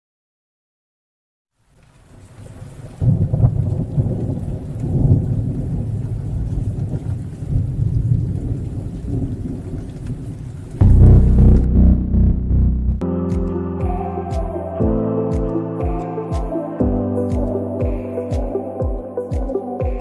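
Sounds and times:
low noisy rumble: 10.8 - 13.0
low hit: 10.8 - 15.0.

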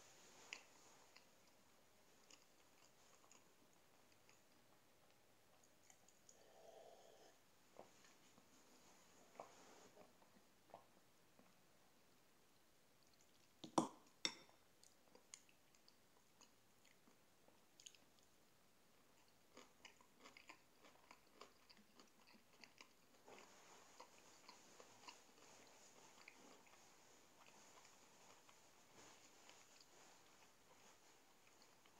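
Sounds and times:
person chewing food: 0.2 - 6.6, 13.0 - 31.9.

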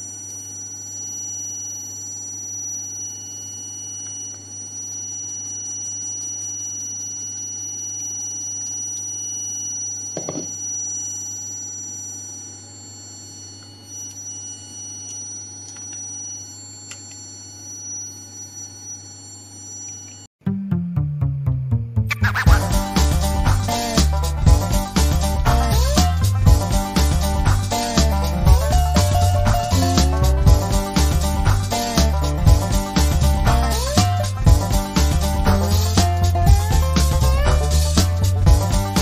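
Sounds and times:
high-pitched whining tones: 22.1 - 39.0.

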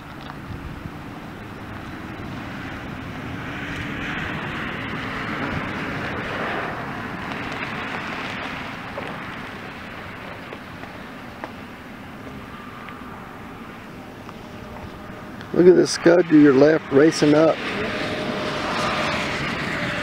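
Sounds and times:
wind: 0.0 - 20.0
vehicle passing: 0.6 - 20.0.

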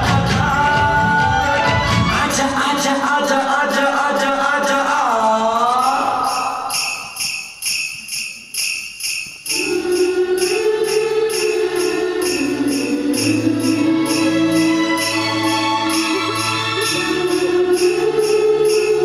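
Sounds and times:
jingle bells shaken rhythmically: 5.7 - 19.0.

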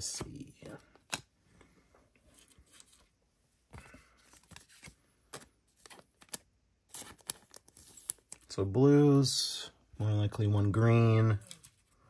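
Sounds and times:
plastic card sleeve rustling: 2.2 - 8.5, 11.1 - 12.0.

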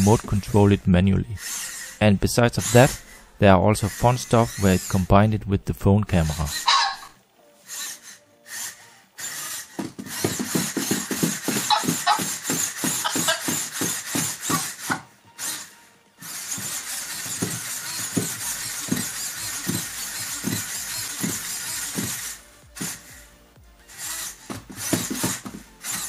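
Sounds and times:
music with steady beat: 9.6 - 26.0.

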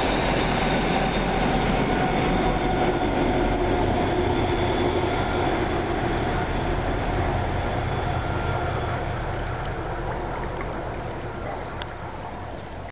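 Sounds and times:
train rumble: 0.0 - 12.9
faint hum: 3.4 - 12.9.

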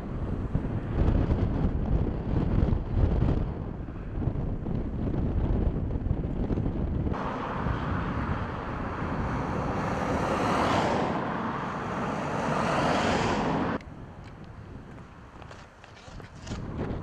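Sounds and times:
wind rumble on microphone: 0.0 - 17.0
rushing wind hiss: 7.1 - 17.0.

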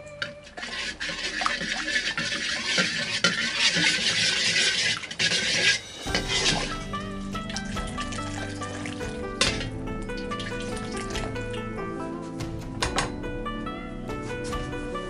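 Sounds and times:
background music: 0.0 - 1.6, 5.5 - 15.0
metal ladle scraping pan: 0.2 - 11.6
caramel sizzling: 0.3 - 11.8
liquid poured into pan: 0.5 - 11.7.

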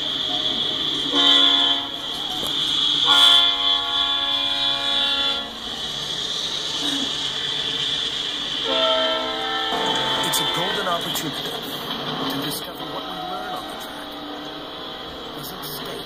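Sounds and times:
locomotive air horn blasts: 1.0 - 2.2, 3.0 - 5.7, 8.6 - 11.1, 12.9 - 15.3.

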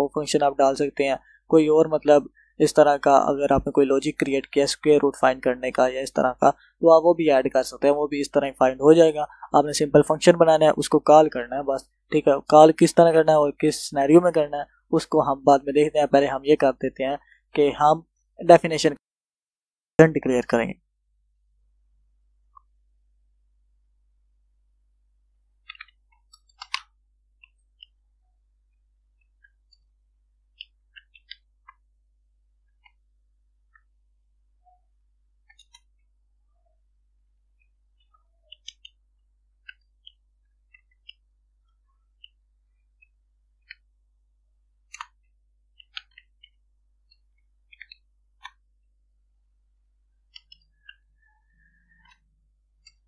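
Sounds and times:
keyboard keystrokes: 25.6 - 26.9.

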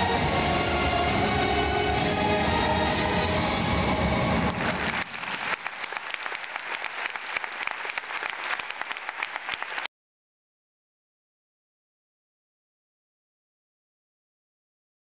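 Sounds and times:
rumbling stage soundtrack: 0.0 - 8.1
audience applause: 4.4 - 9.9.

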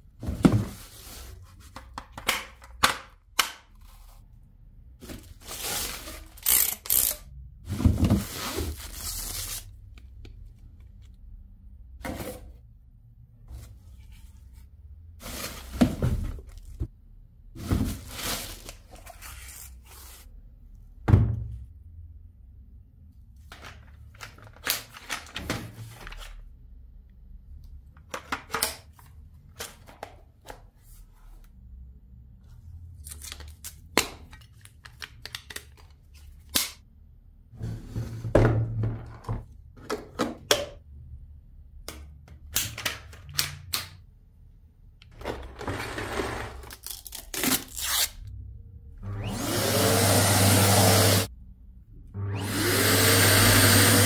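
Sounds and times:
vacuum motor whooshing and whining: 49.1 - 51.3, 52.2 - 54.0.

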